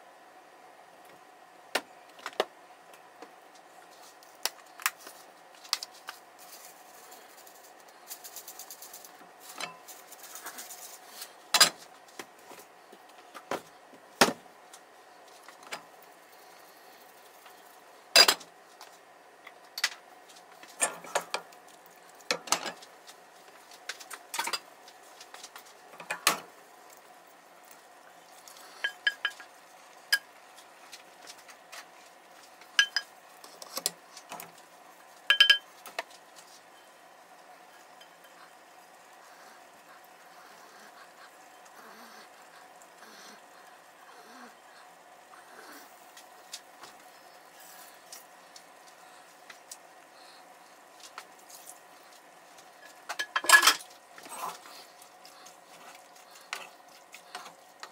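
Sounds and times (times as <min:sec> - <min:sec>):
faint hum: 0:00.0 - 0:57.9
utensils clattering on pots: 0:11.5 - 0:11.8, 0:18.1 - 0:18.5, 0:20.8 - 0:21.5, 0:22.3 - 0:22.8, 0:24.3 - 0:24.7, 0:26.0 - 0:26.5, 0:28.8 - 0:29.5, 0:32.7 - 0:33.1, 0:35.3 - 0:35.7, 0:52.8 - 0:53.9.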